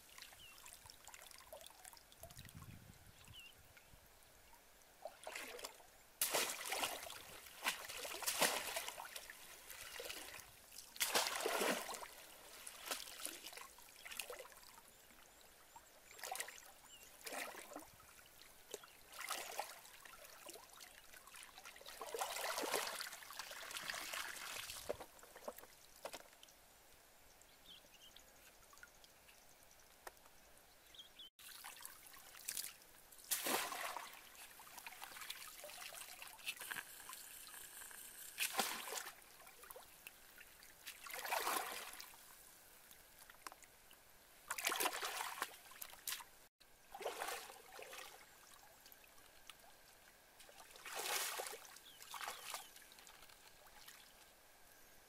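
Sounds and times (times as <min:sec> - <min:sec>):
faint water trickle: 0:00.0 - 0:55.0
water sloshing from basket: 0:05.2 - 0:10.4, 0:11.0 - 0:13.6, 0:33.3 - 0:36.9, 0:40.8 - 0:42.0.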